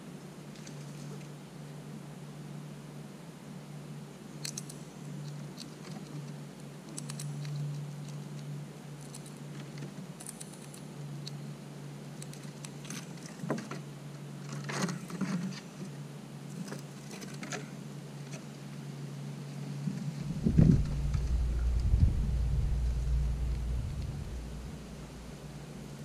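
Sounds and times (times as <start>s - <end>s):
squirrel claws pattering and scratching: 4.4s - 18.6s
steady low hum: 15.2s - 26.0s.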